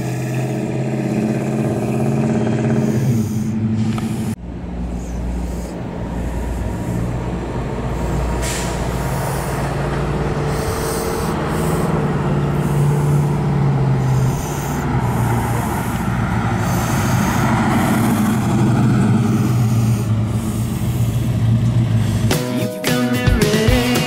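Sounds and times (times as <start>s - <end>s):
music: 22.3s - 24.0s.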